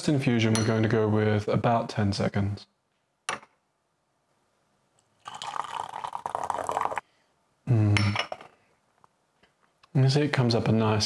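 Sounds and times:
tea pouring into glass pitcher: 5.2s - 7.0s.

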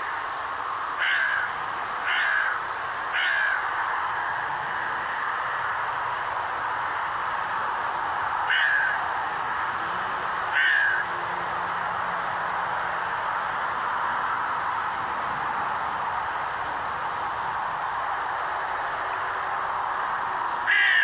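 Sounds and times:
steady hiss: 0.0s - 21.0s
crow cawing: 1.0s - 3.8s, 8.4s - 9.1s, 10.5s - 11.2s, 20.6s - 21.0s.

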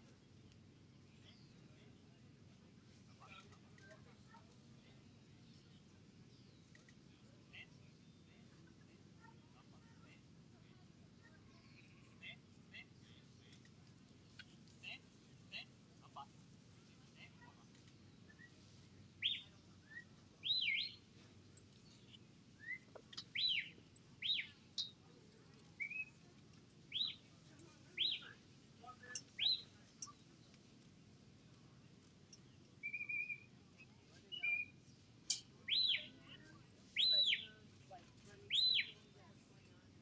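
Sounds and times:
whistled commands: 32.8s - 33.5s.

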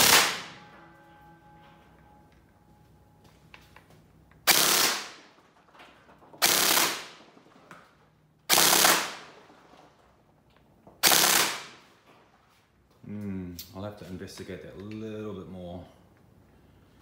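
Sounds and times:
gel blaster full-auto bursts: 4.5s - 5.2s, 6.4s - 7.1s, 8.5s - 9.2s, 11.0s - 11.7s.

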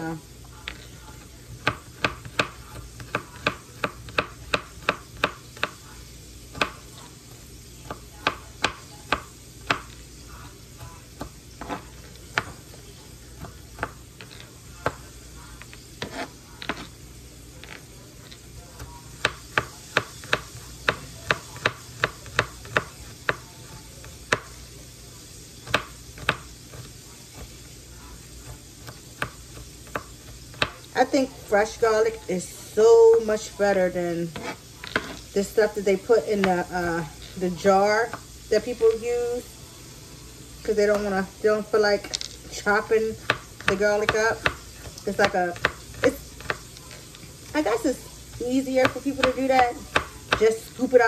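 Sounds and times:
knife chopping on cutting board: 1.6s - 5.9s, 6.5s - 17.0s, 18.8s - 24.6s, 25.6s - 30.9s, 34.3s - 35.2s, 43.1s - 50.7s.

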